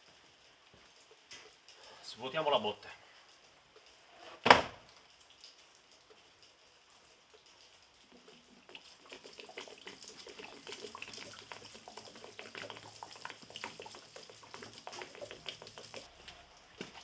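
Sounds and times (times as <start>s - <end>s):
water gurgling out of barrel: 8.0s - 17.0s.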